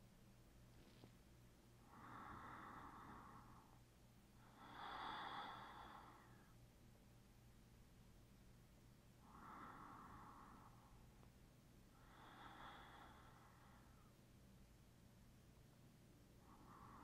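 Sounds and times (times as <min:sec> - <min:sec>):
faint low hum: 0:00.0 - 0:17.0
slow breathing close to microphone: 0:01.8 - 0:06.6, 0:09.2 - 0:11.2, 0:11.9 - 0:14.2, 0:16.3 - 0:17.0.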